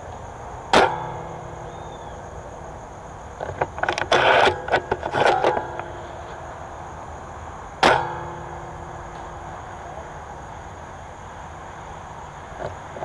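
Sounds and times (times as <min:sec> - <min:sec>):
rustling and scraping through brush: 0:03.3 - 0:06.7.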